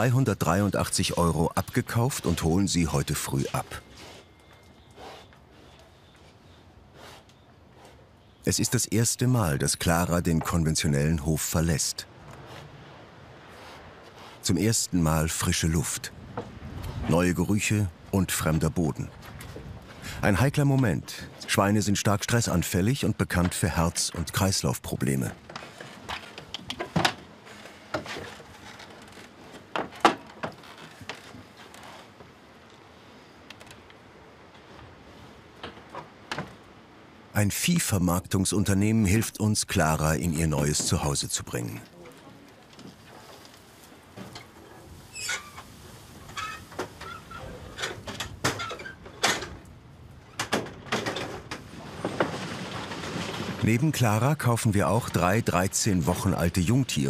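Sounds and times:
metal clanks in livestock trailer: 46.3s - 49.7s.

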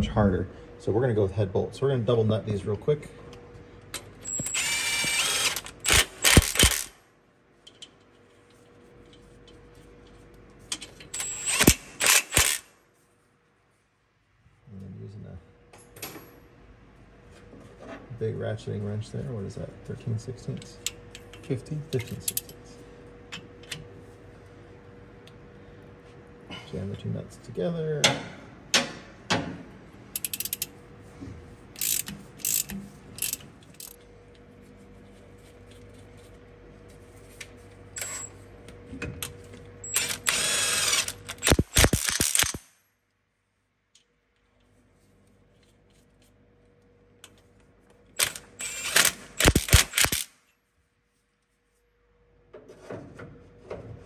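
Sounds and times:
ratchet wrench clicking: 4.3s - 6.9s, 11.2s - 12.6s, 30.2s - 30.7s, 31.8s - 34.0s, 39.9s - 42.6s, 48.2s - 50.3s.

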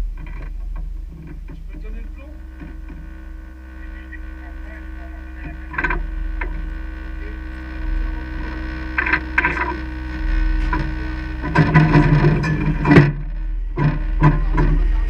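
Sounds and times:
steady low hum: 0.0s - 15.0s
muffled men's voices: 1.6s - 12.3s, 14.2s - 15.0s.

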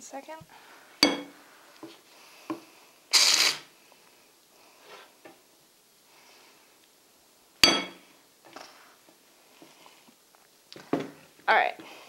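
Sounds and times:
sharp ringing metal clink: 1.0s - 1.4s, 7.6s - 8.0s
spoon knocking on metal: 1.0s - 1.4s, 7.6s - 8.0s.

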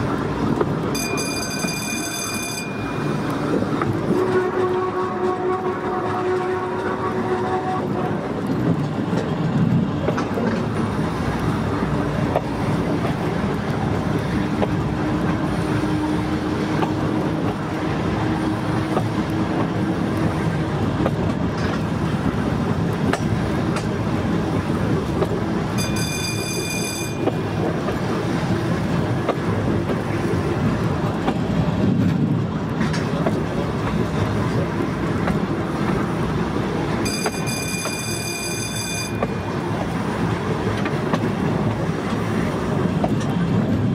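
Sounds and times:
wheels rumbling on rail: 0.0s - 43.9s
high-pitched warning tone: 37.1s - 39.5s.

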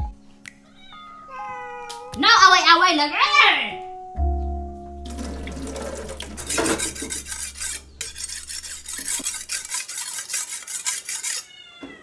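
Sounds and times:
low hum: 3.9s - 9.7s
kitchen utensil scraping: 5.1s - 11.6s.

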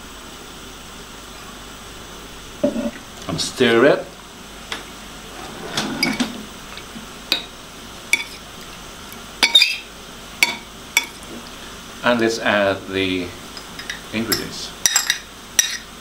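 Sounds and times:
fork clinking on ceramic bowl: 8.2s - 8.4s, 9.4s - 9.8s, 13.6s - 15.9s.

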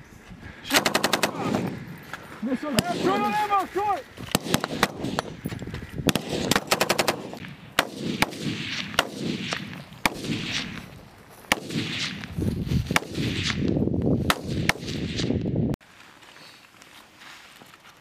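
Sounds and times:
single rifle shots: 4.3s - 5.4s, 6.1s - 10.9s, 11.5s - 12.3s, 12.9s - 15.4s.

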